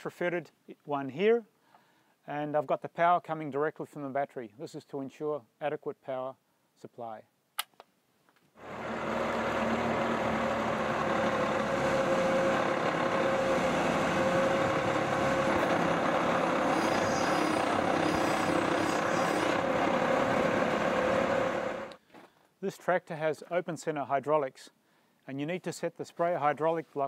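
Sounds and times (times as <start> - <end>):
steady hum: 8.6 - 22.0
tractor diesel engine running: 8.6 - 22.0.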